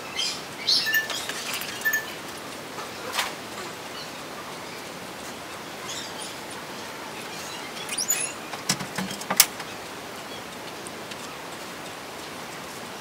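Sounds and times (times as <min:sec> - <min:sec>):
quick high bird chirps: 0:00.7 - 0:02.2.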